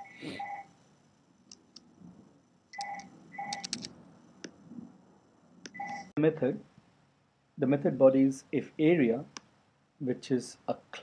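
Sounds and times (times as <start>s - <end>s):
short faint beeps: 0.0s - 0.7s, 2.8s - 3.7s, 5.7s - 6.1s
computer mouse clicks: 2.8s - 4.6s.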